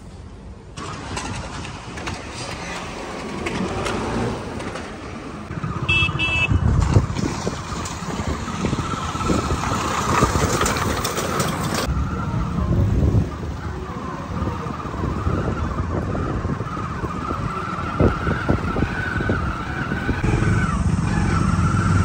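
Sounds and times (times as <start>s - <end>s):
wind buffeting microphone: 5.4s - 22.0s.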